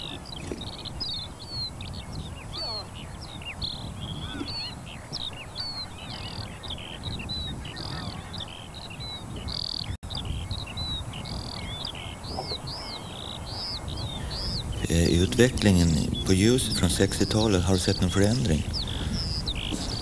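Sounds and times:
small birds chirping: 0.0 - 20.0
low rumble: 14.0 - 19.7.

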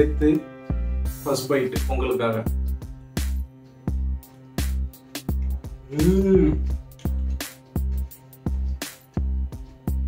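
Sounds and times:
held bass line: 3.2 - 7.3.

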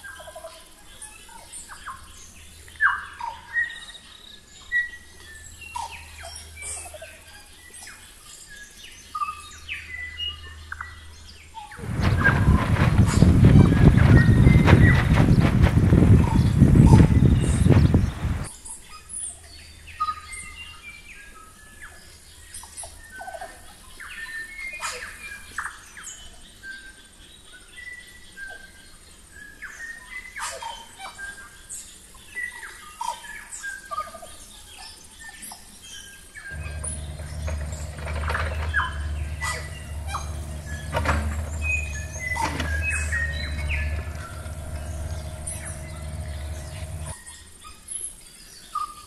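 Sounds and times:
low machinery engine hum: 11.8 - 18.5, 36.5 - 47.2
small birds chirping: 11.8 - 18.5, 36.5 - 47.2.

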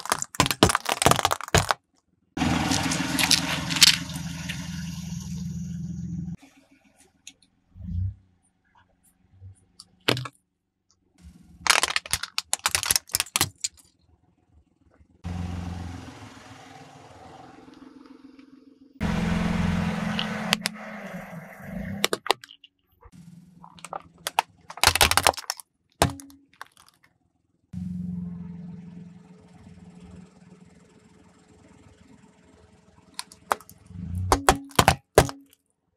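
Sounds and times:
tyre crushing plastic objects: 0.0 - 4.1, 10.0 - 10.4, 11.6 - 13.9, 22.0 - 22.6, 23.6 - 27.0, 33.2 - 35.6
car engine and tyres rumbling: 0.0 - 35.4.

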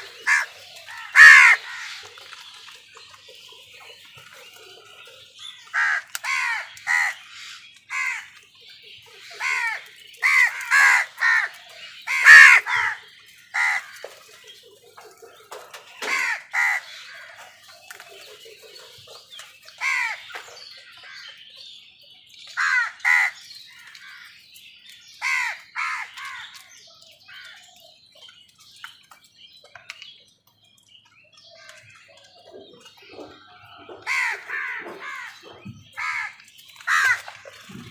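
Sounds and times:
crows cawing: 0.0 - 2.1, 5.7 - 8.4, 9.2 - 14.3, 16.0 - 17.5, 19.8 - 20.2, 22.6 - 23.4, 25.2 - 26.6, 34.0 - 37.6.

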